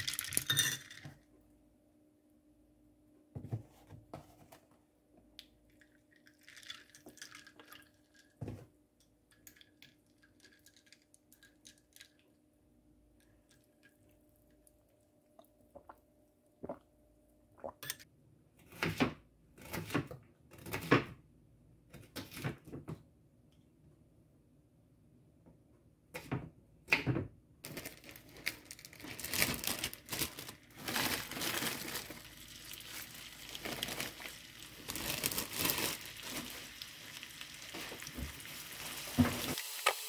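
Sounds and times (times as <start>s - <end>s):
ice cubes clinking in a cup: 0.0s - 1.1s, 5.7s - 8.4s, 9.3s - 12.2s, 27.7s - 39.5s
milk pouring: 5.7s - 8.5s, 29.2s - 39.6s.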